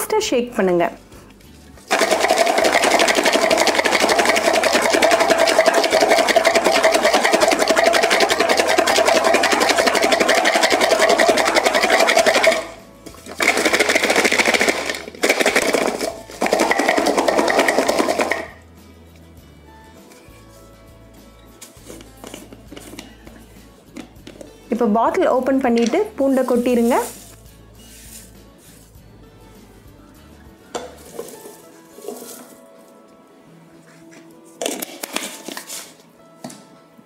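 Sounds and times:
garlic rattling in plastic jar: 0:01.9 - 0:18.6, 0:25.7 - 0:27.4.

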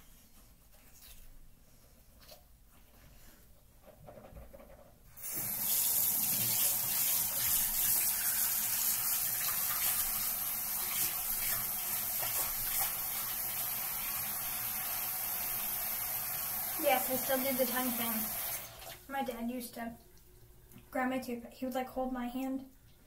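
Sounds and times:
tap water running into sink: 0:05.2 - 0:19.0
toothbrush scrubbing: 0:10.8 - 0:13.1.

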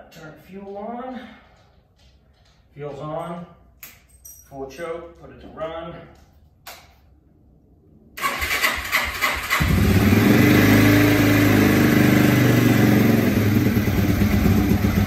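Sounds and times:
motorcycle engine cranking and idling: 0:00.1 - 0:03.4, 0:08.2 - 0:15.0.

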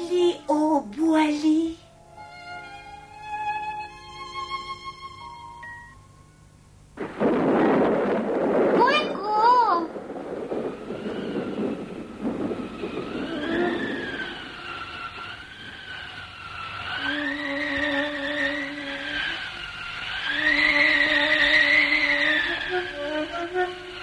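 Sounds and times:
rushing noise: 0:07.0 - 0:24.0
whistling storm wind: 0:07.0 - 0:24.0
low held musical notes: 0:09.2 - 0:24.0.

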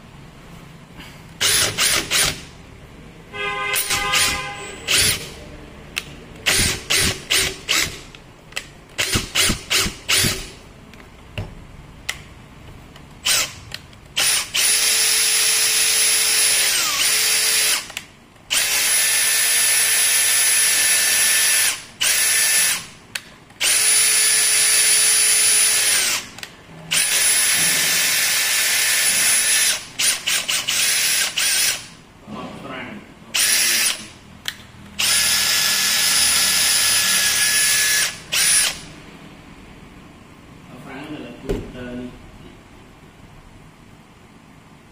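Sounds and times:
drill trigger blips: 0:06.4 - 0:10.6, 0:35.0 - 0:38.9
cordless drill motor whine: 0:14.2 - 0:17.9, 0:23.6 - 0:26.2, 0:33.4 - 0:34.0, 0:35.0 - 0:38.9.

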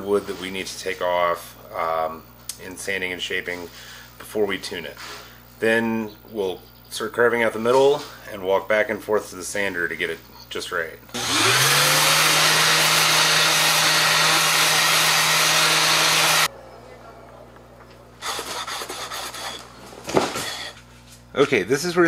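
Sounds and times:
orbital sander motor: 0:11.1 - 0:16.5, 0:18.2 - 0:19.7
quiet scuffing: 0:19.9 - 0:21.4.

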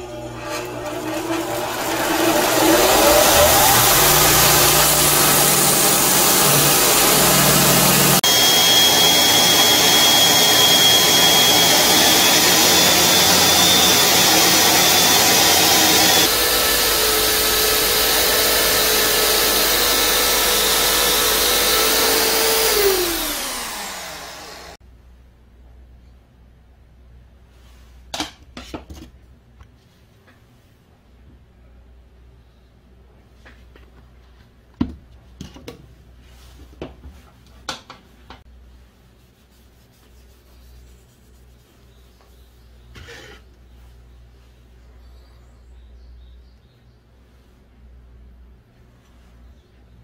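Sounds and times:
belt sander grinding wood: 0:00.0 - 0:24.8
drill spinning sanding disc: 0:00.0 - 0:24.8.

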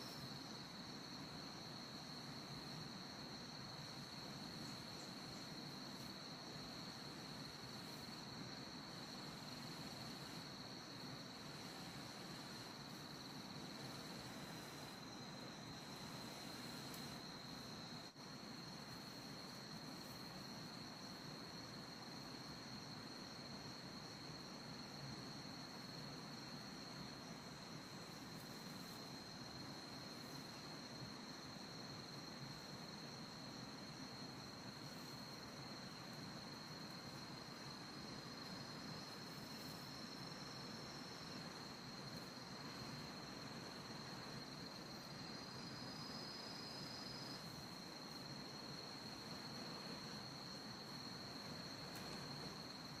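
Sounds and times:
faint hiss: 0:00.0 - 0:53.0
insect chirring: 0:00.0 - 0:53.0.

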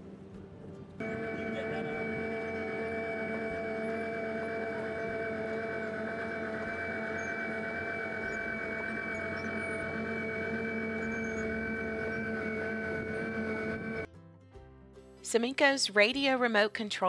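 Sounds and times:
mining machine whine and rumble: 0:00.9 - 0:14.1.

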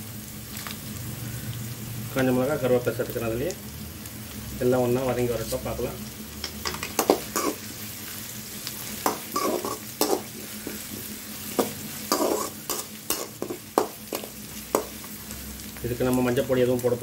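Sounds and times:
spices sizzling in hot oil: 0:00.0 - 0:17.0
metal ladle scraping a pan: 0:06.6 - 0:07.6, 0:09.1 - 0:10.8, 0:12.1 - 0:14.3.

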